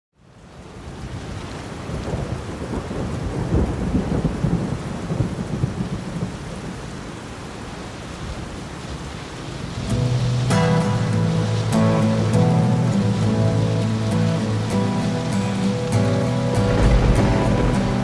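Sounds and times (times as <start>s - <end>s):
steady rain: 0.2s - 18.0s
music: 9.9s - 18.0s
thunder rumble: 16.0s - 18.0s.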